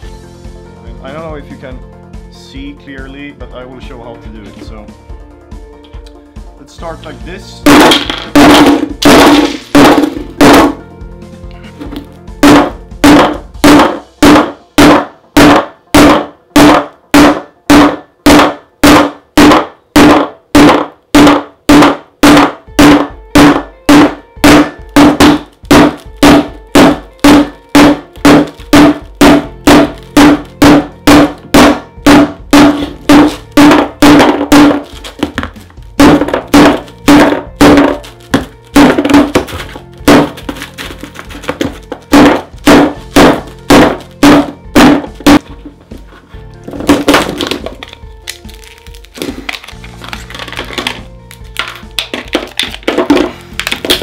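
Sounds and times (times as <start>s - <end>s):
hammer blows on phone on wood: 7.6s - 10.8s, 11.7s - 45.6s.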